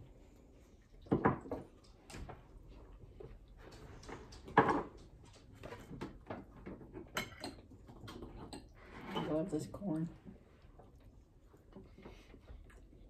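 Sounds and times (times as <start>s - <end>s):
cutlery clatter: 6.7s - 9.4s
cutlery clinking on plates: 7.0s - 9.4s.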